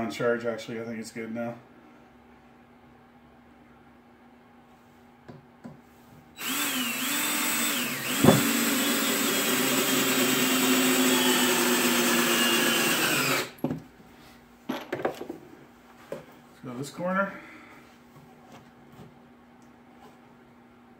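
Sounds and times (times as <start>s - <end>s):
cordless drill motor whining: 6.4s - 13.6s.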